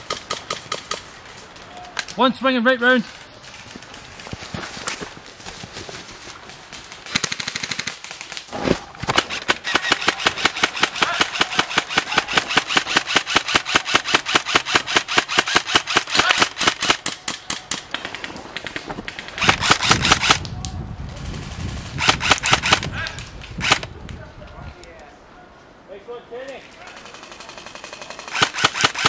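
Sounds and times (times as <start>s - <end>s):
airsoft rifle firing full auto: 9.1s - 17.7s, 22.0s - 22.9s, 27.0s - 29.0s.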